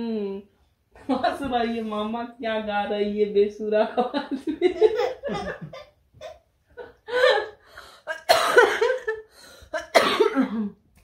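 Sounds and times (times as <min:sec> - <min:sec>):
woman laughing breathily: 0:04.6 - 0:05.8, 0:06.8 - 0:09.8
woman gasping for breath: 0:07.1 - 0:08.1, 0:09.3 - 0:09.8.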